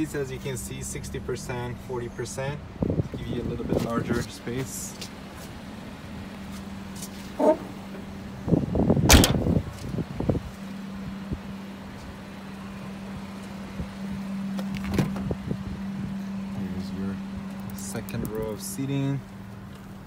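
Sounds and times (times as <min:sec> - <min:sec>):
steady low hum: 0:00.0 - 0:20.0
car tailgate slammed shut: 0:09.0 - 0:09.6.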